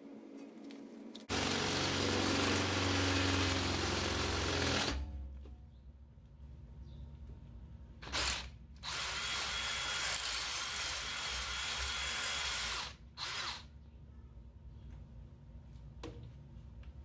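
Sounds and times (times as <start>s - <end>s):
power drill boring metal: 1.3s - 5.0s, 8.0s - 13.7s.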